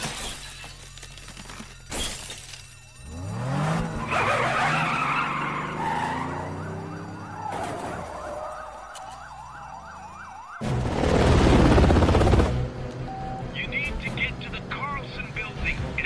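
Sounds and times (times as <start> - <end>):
car engine revving: 3.0 - 8.2
police sirens yelping: 3.0 - 10.6.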